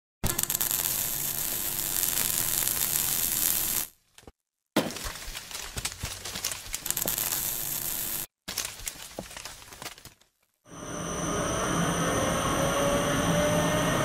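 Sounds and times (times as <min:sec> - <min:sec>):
loud crackling hiss: 0:00.3 - 0:03.9, 0:06.9 - 0:08.3.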